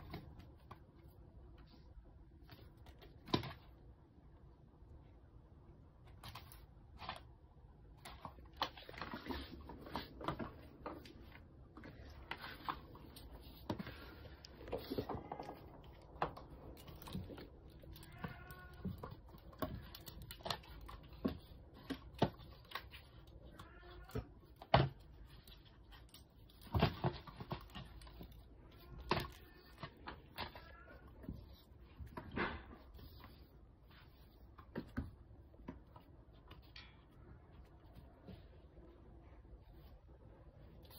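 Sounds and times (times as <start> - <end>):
kitten paws tapping on tiles: 8.3 - 32.3.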